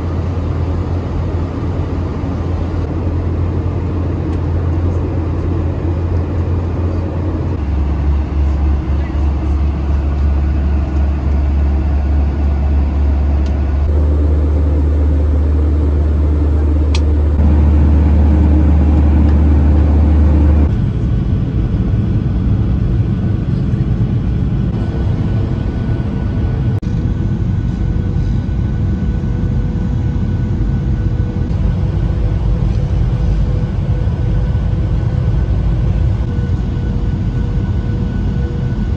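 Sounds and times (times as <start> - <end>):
deep low hum: 0.0 - 38.9
jet engine drone: 0.0 - 38.9
airflow rushing noise: 9.7 - 20.7.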